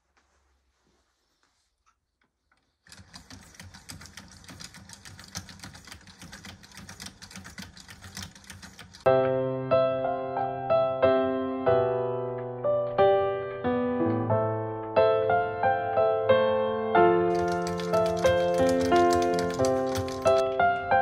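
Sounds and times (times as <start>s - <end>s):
loud piano music: 9.1s - 21.0s
wooden automaton clattering clicks: 17.3s - 20.4s.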